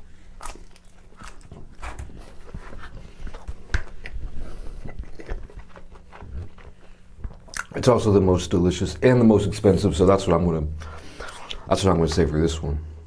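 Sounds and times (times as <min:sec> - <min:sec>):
wet chewing mouth sounds: 0:00.4 - 0:07.8.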